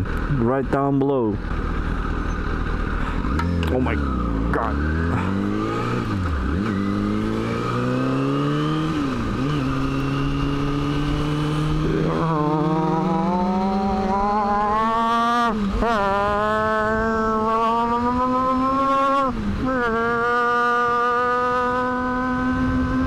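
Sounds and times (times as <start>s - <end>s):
motorcycle engine accelerating: 0.0s - 23.0s.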